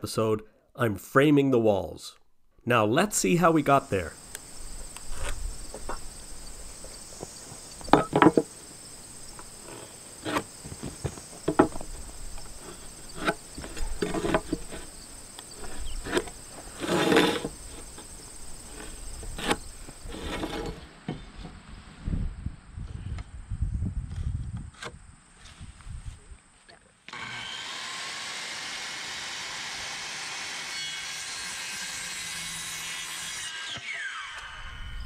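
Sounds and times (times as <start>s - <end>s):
high-pitched insect chorus: 3.4s - 20.7s
hand tools knocking on wood: 7.8s - 8.5s, 9.7s - 12.0s.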